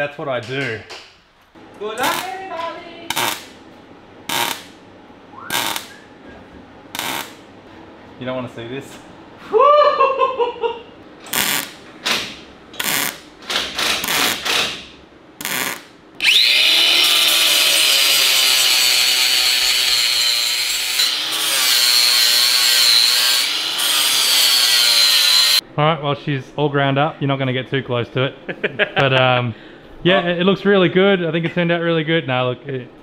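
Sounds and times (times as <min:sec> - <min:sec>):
angle grinder grinding metal: 0:07.0 - 0:07.4, 0:15.4 - 0:25.6.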